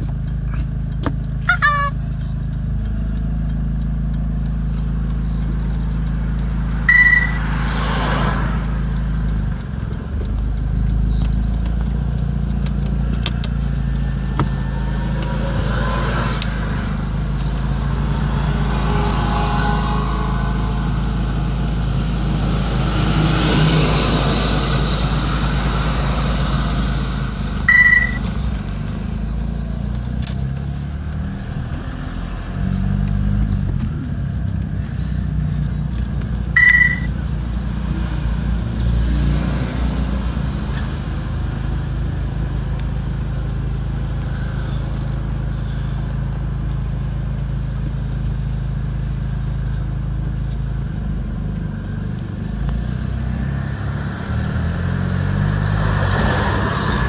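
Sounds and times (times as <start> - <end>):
low engine hum: 0.0 - 57.0
truck driving past: 5.9 - 11.5, 13.8 - 29.3, 30.0 - 42.1, 51.7 - 57.0
short high beep: 6.9 - 7.4, 27.7 - 28.2, 36.6 - 37.1.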